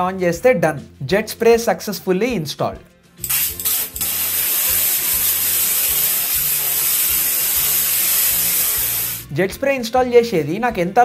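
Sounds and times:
water jet spraying into bathtub: 3.2 - 9.2.

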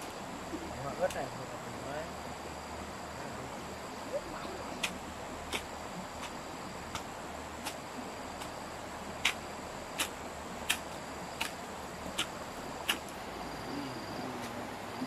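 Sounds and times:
faint insect buzz: 0.0 - 15.0.

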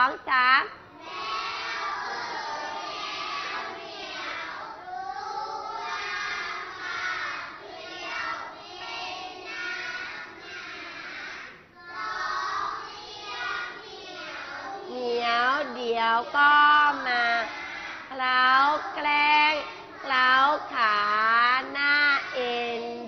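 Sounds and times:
children chanting in unison: 0.9 - 23.0.

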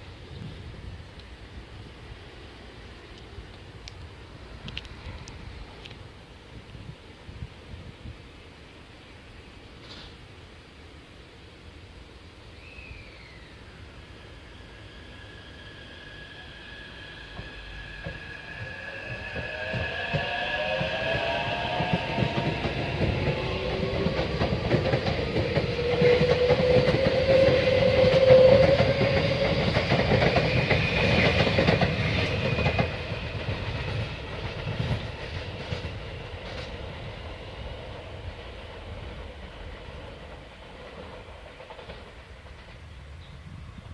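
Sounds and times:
wheel and rail noise: 0.0 - 43.9
train traction motors whining: 12.9 - 39.7.

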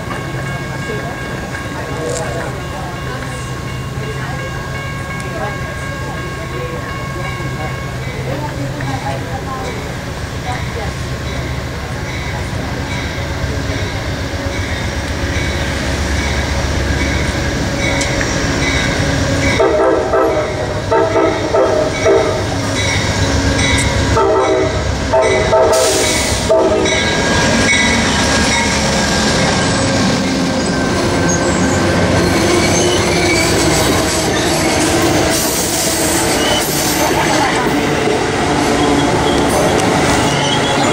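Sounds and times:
crossing signal bell ringing: 0.0 - 34.9
train wheels on rails: 0.0 - 40.9
locomotive air horn blasts: 19.6 - 22.6, 24.1 - 27.0.

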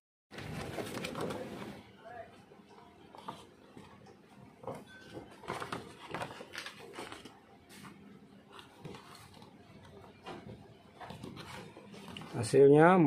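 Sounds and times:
paper rustling: 0.3 - 1.8, 5.2 - 12.5.

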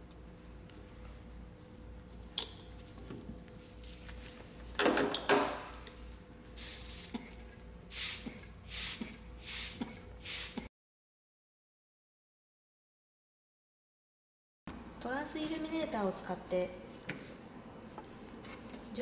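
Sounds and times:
short air hisses from resuscitation bag: 6.6 - 7.2, 7.9 - 10.7.

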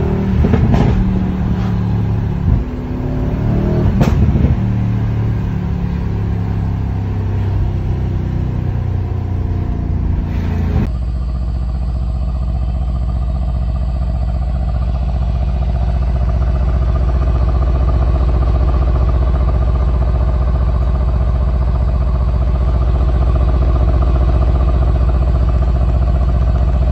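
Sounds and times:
car engine from inside cabin: 0.0 - 26.9
engine idling burble: 10.8 - 26.9.

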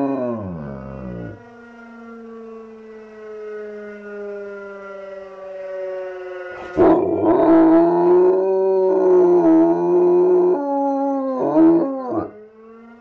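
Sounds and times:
dog howling: 0.0 - 1.4, 6.6 - 12.4
fire siren wailing: 0.0 - 13.0.

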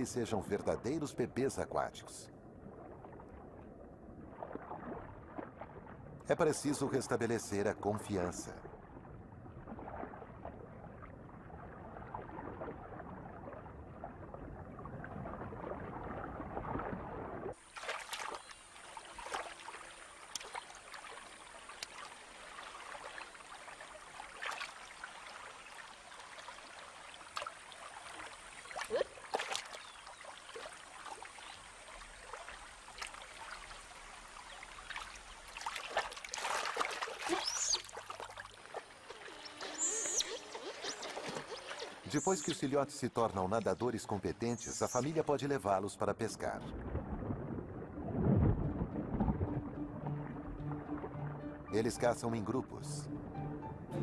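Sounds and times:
muffled underwater water noise: 0.0 - 53.4
water trickling and dripping: 2.6 - 45.4
otters splashing in water: 16.5 - 23.4, 27.3 - 31.3, 34.9 - 42.8.

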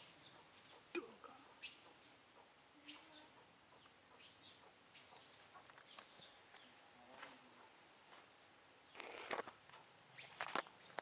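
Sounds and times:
high-pitched animal chirps: 2.8 - 3.3
rustling and clicks: 8.9 - 11.0.

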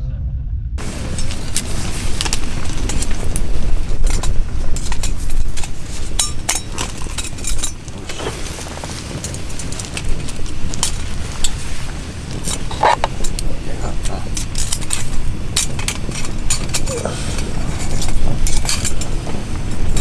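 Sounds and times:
steady low rumble: 0.0 - 20.0
twigs crackling and popping in stove: 0.8 - 20.0.

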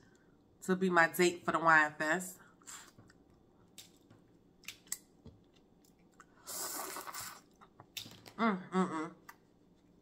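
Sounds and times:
crawfish shells clicking and chewing: 3.0 - 6.4.

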